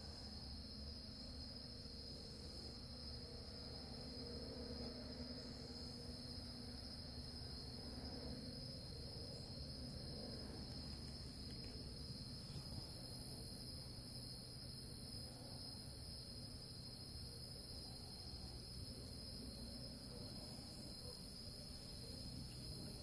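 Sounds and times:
crickets chirring: 0.0 - 23.0.

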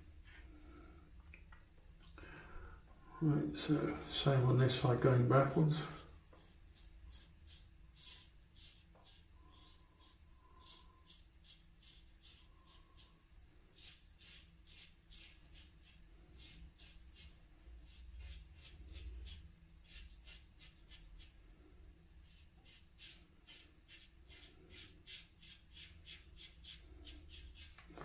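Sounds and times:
razor scraping stubble: 13.8 - 21.3, 22.5 - 28.0.

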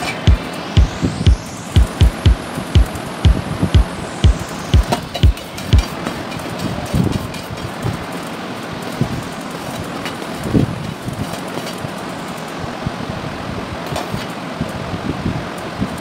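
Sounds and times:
steady background noise: 0.0 - 16.0.

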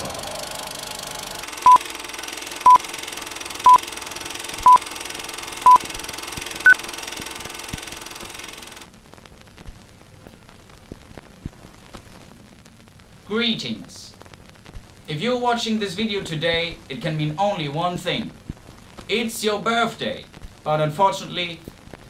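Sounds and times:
steady hiss: 1.4 - 22.0
countdown beeps: 5.6 - 5.8.

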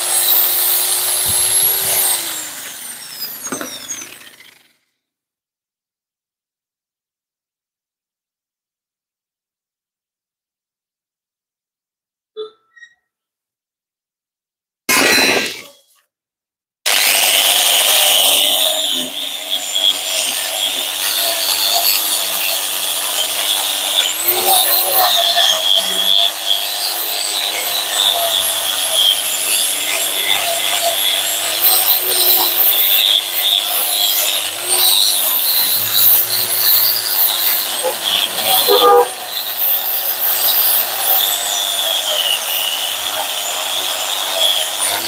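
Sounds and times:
power tool motor humming: 0.0 - 4.8, 16.9 - 45.0.

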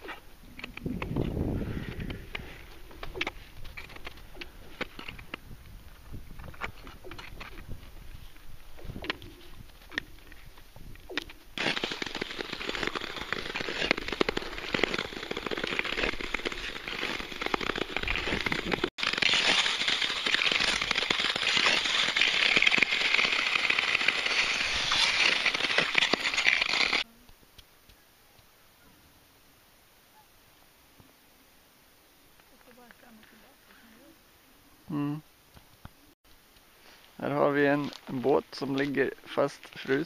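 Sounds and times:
skate blades scraping over ice: 0.0 - 5.4, 11.1 - 27.0.

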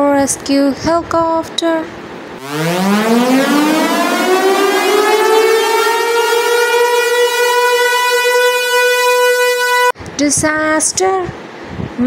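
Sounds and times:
siren wailing: 2.4 - 10.0.

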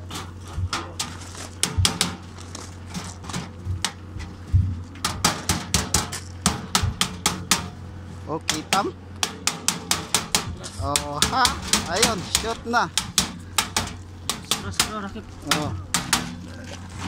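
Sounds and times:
steady low hum: 0.0 - 17.0
hammer tapping on sheet metal: 1.6 - 2.2, 5.0 - 7.8, 8.4 - 16.4.

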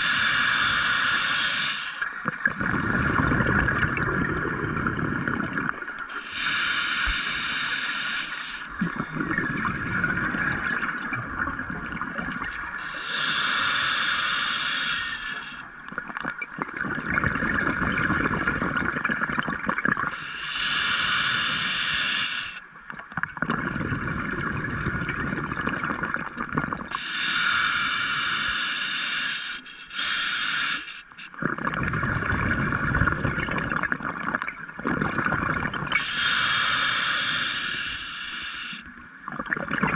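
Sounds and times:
steady hiss: 0.0 - 2.1, 6.1 - 8.8, 12.6 - 15.6, 20.2 - 22.7, 27.0 - 31.4, 36.0 - 38.9
bubbles gurgling underwater: 2.1 - 6.1, 8.7 - 12.8, 15.9 - 20.2, 22.9 - 27.0, 31.4 - 36.0, 39.2 - 39.9.

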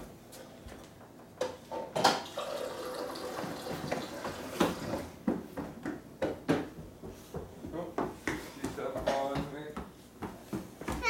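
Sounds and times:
water running from a tap: 2.3 - 5.0.

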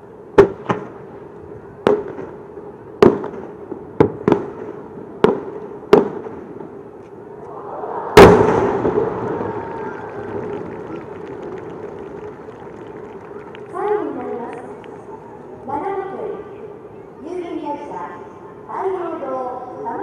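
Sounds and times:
loud fireworks boom crackling: 0.3 - 15.7
fireworks bangs: 1.8 - 15.3.

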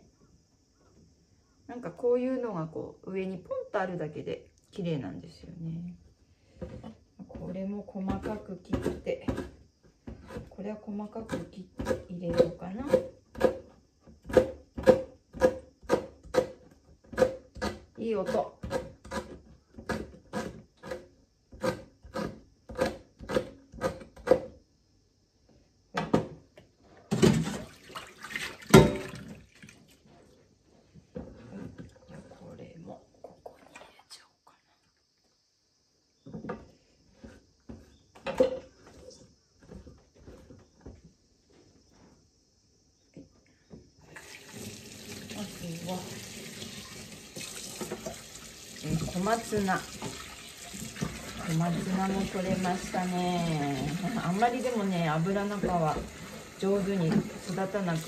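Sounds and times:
knife chopping on cutting board: 11.3 - 13.6, 14.3 - 16.6
running water: 27.3 - 30.1, 44.1 - 58.0.

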